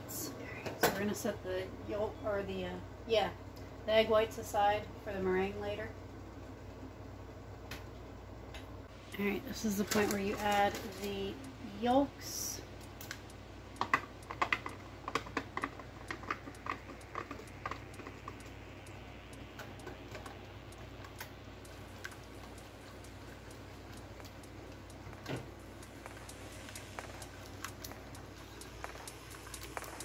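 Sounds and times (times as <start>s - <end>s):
whisk clicking against pot: 13.8s - 19.0s.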